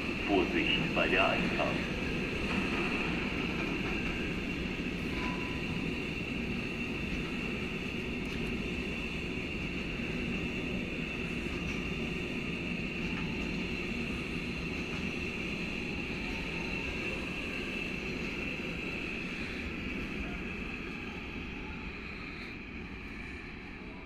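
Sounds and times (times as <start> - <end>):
train wagons rumbling: 0.0 - 21.0
high-pitched ringing tone: 5.1 - 5.9.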